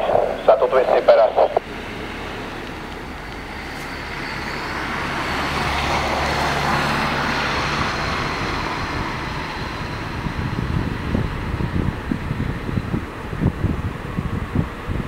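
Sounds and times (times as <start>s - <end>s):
thin high whine: 0.0s - 6.2s
diesel engine drone: 0.0s - 15.0s
train wheels on rails: 1.9s - 12.7s.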